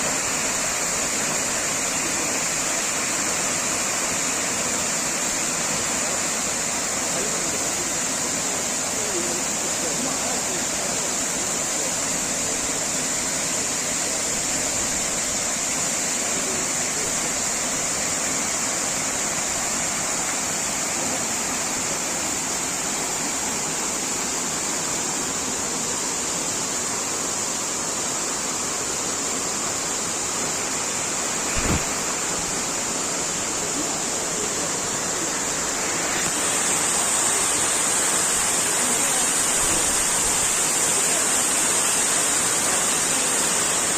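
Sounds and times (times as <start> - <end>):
waterfall and river rushing: 0.0 - 43.9
brief thump: 31.5 - 32.0.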